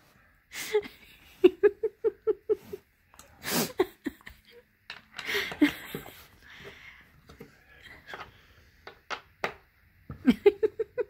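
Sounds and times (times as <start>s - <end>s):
woman laughing: 0.5s - 2.8s, 3.6s - 4.6s, 5.2s - 6.6s, 10.1s - 11.0s.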